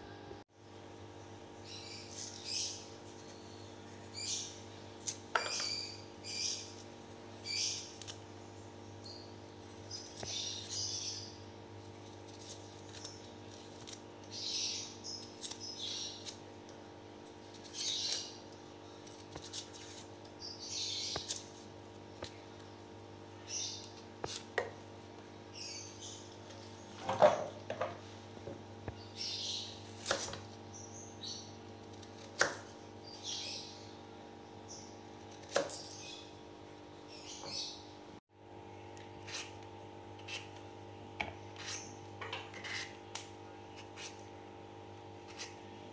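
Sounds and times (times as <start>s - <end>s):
steady hum: 0.0s - 17.7s
knife scraping vegetable skin: 11.8s - 16.4s, 17.3s - 18.4s, 19.0s - 22.4s, 23.8s - 24.6s, 29.8s - 30.5s, 31.9s - 32.8s, 35.2s - 36.1s, 39.2s - 39.6s, 40.2s - 40.6s, 41.6s - 44.3s, 45.2s - 45.6s.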